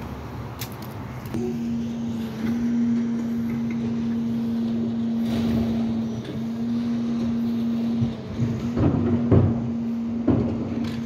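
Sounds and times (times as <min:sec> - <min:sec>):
truck engine hum: 0:00.0 - 0:11.0.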